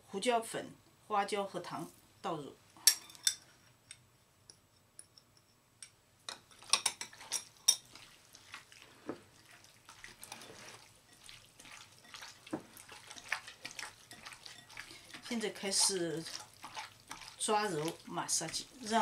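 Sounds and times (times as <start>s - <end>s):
hands squelching raw chicken: 7.9s - 18.9s.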